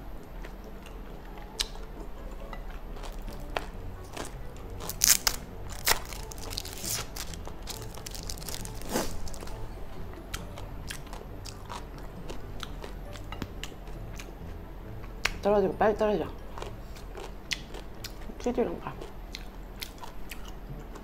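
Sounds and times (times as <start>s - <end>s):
close chewing: 0.2s - 15.4s, 16.5s - 21.0s
plastic wrapper crackling: 4.8s - 9.6s.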